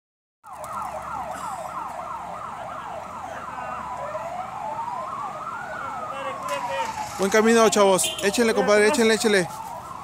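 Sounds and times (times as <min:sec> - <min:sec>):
second siren tone rising: 0:00.4 - 0:07.9
electronic siren yelping: 0:00.4 - 0:10.0.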